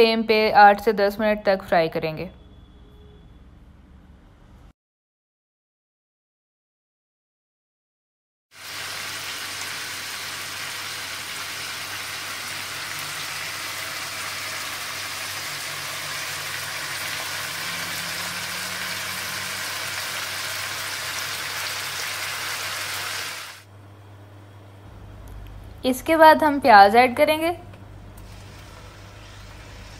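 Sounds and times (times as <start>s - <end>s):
chicken sizzling in hot oil: 8.5s - 23.6s, 28.2s - 29.9s.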